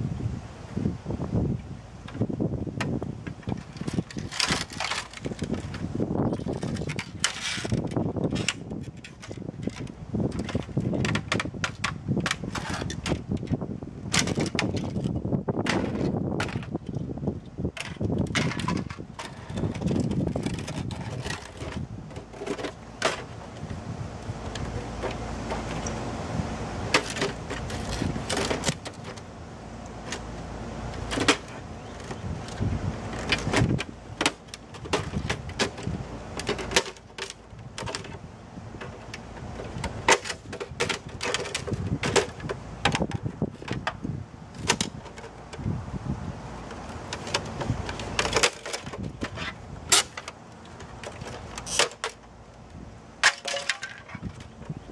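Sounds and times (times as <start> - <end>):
plastic parts snapping apart: 53.2 - 54.5.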